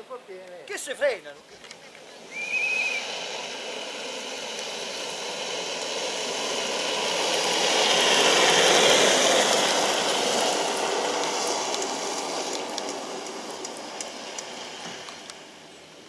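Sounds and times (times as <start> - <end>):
kart wheels rushing on asphalt: 0.0 - 16.0.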